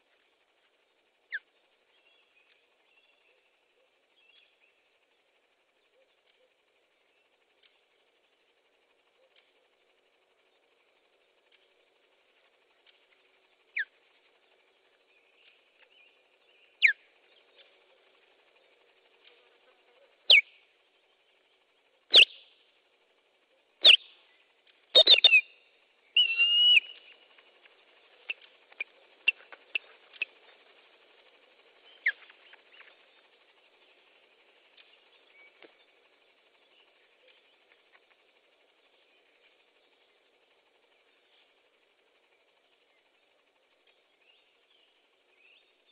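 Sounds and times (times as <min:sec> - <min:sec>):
osprey whistled alarm calls: 0:01.2 - 0:04.8, 0:13.7 - 0:14.0, 0:15.1 - 0:18.7, 0:20.2 - 0:21.3, 0:22.1 - 0:22.6, 0:23.8 - 0:37.8.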